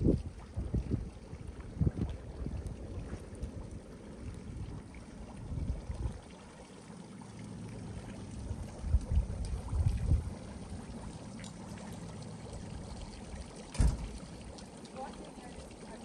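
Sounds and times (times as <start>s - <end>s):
wind buffeting microphone: 0.0s - 6.3s, 8.5s - 11.0s
faint water trickle: 0.0s - 16.0s.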